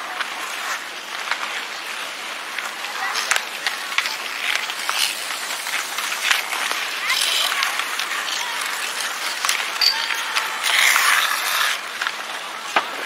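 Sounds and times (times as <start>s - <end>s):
skate wheels rattling: 0.0s - 13.0s
children's voices: 2.7s - 11.8s.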